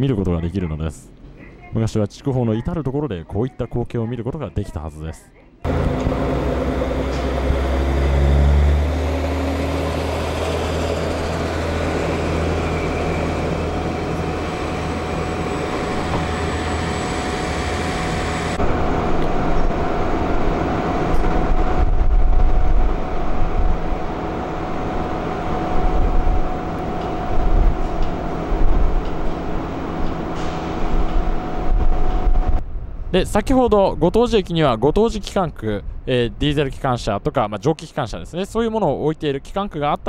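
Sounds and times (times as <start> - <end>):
diesel train engine accelerating: 5.7 - 32.8.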